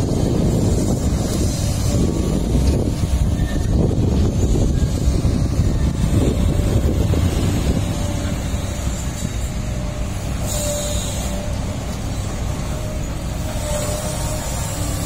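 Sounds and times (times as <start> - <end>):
heavy diesel machinery rumbling: 0.0 - 15.0.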